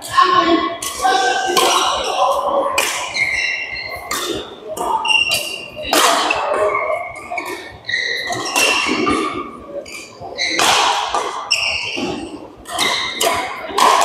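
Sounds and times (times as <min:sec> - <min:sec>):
shoes squeaking on court: 0:01.8 - 0:13.8
rackets striking shuttlecock: 0:02.8 - 0:06.7, 0:07.4 - 0:14.0.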